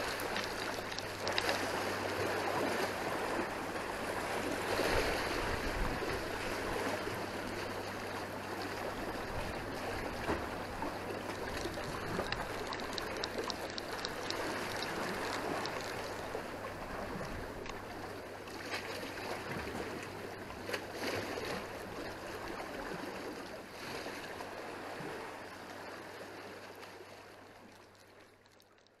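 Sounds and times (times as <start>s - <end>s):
sea water splashing on concrete: 0.0s - 7.7s, 8.6s - 20.0s.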